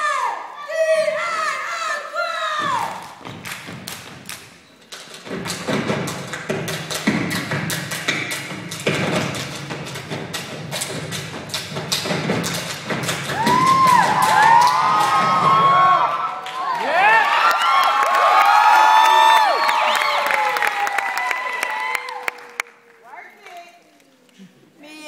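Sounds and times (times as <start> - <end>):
stomping and clapping in unison: 2.6 - 23.0
audience shouting: 13.3 - 22.6.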